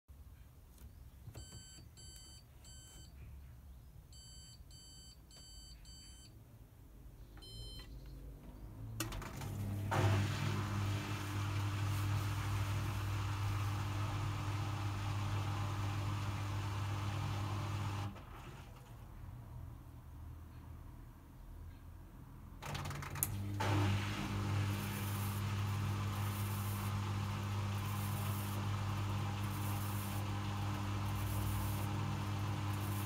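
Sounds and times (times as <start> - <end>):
electronic beeps: 4.1 - 6.4, 7.4 - 8.0
drain pump humming: 9.1 - 18.7, 23.2 - 33.0.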